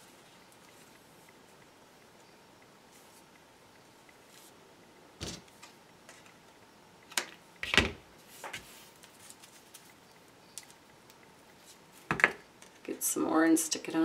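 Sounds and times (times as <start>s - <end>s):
knocks and rustles on tabletop: 12.1s - 12.4s.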